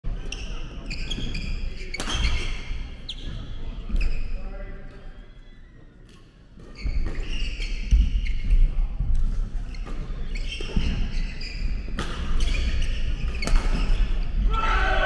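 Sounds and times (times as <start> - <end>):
shoes squeaking on wooden floor: 0.3 - 2.5, 6.7 - 8.6, 9.7 - 14.4
racket hitting shuttlecock: 11.9 - 14.1.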